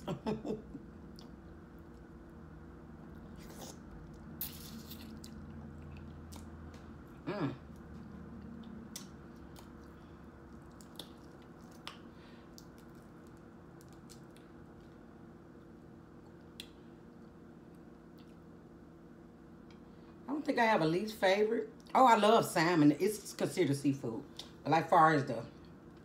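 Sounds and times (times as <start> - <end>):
person chewing: 1.0 - 2.3, 3.0 - 15.0
small mouth clicks and smacks: 8.4 - 9.9, 10.6 - 14.9, 16.2 - 17.3, 18.1 - 18.4.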